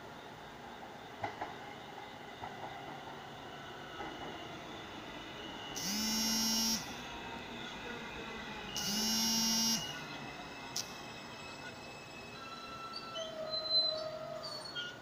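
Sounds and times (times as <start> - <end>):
subway train rumbling: 0.0 - 15.0
train horn: 5.8 - 7.0, 8.8 - 10.0.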